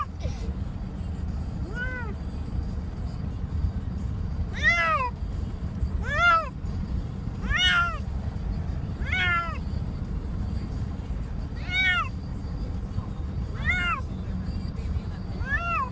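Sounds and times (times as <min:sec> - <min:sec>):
cat meowing: 0:01.6 - 0:02.1, 0:04.5 - 0:05.1, 0:06.0 - 0:06.5, 0:07.4 - 0:08.0, 0:09.0 - 0:09.6, 0:11.6 - 0:12.1, 0:13.6 - 0:14.0, 0:15.4 - 0:15.9.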